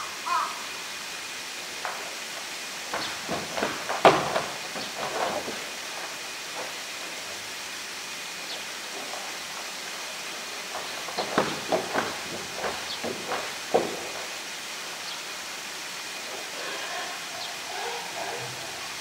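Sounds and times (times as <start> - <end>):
background hiss: 0.0 - 19.0
drum scraping: 1.7 - 8.0
plastic drum knocking on concrete: 2.9 - 5.5.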